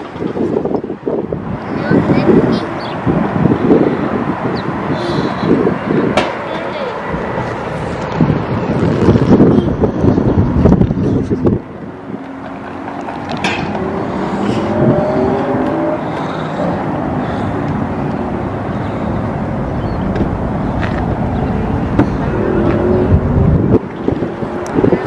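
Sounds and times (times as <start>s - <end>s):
street traffic: 0.0s - 25.0s
engine rising in pitch: 12.2s - 25.0s.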